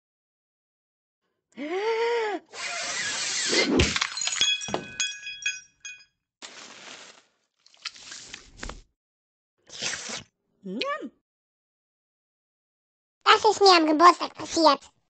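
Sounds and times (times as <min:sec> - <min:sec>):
glassy tinkling clinks: 0:04.0 - 0:06.1.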